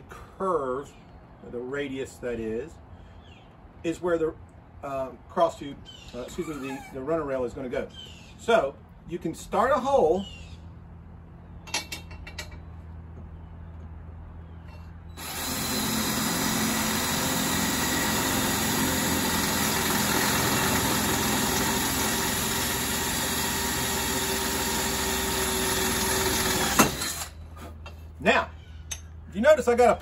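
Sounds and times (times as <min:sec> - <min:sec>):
electric drill running: 0:15.2 - 0:27.4.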